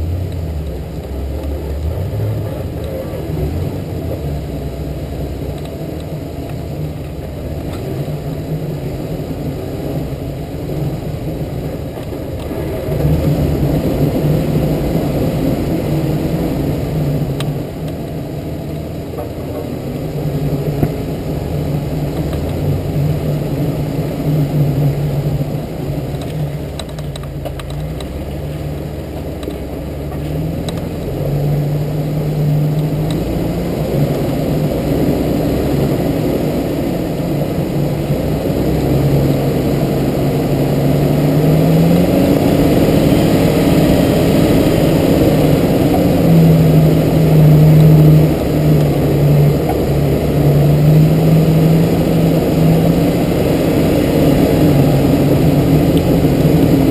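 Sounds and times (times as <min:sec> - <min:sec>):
off-road vehicle engine revving: 0:00.0 - 0:56.9.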